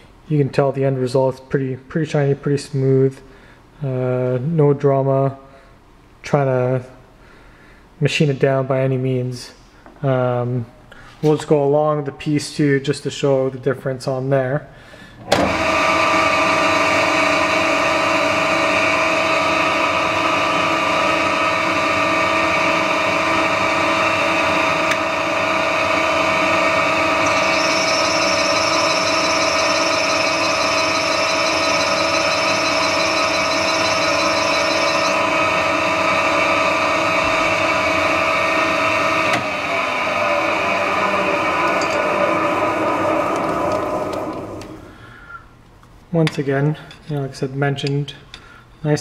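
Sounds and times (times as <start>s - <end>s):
metal lathe gear whine: 19.4s - 38.5s, 39.6s - 44.6s
higher-pitched whine: 26.4s - 36.8s.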